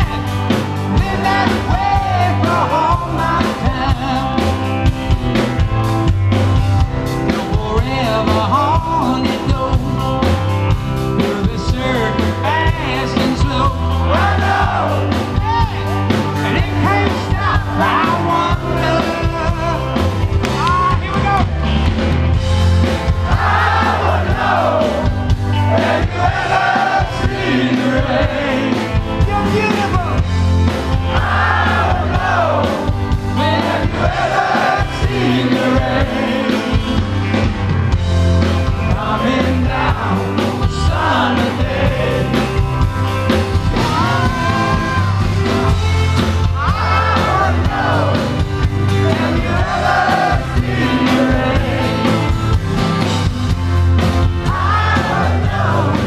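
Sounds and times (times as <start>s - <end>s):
man singing lead vocal: 0.0s - 4.9s, 7.2s - 21.4s, 23.3s - 30.2s, 31.1s - 37.4s, 38.8s - 42.7s, 43.7s - 52.3s
live rock band: 0.0s - 56.0s.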